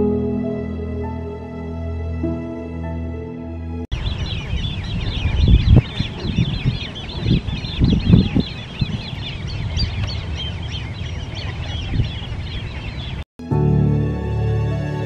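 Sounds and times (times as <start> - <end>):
bird chicks piping: 3.9 - 13.2.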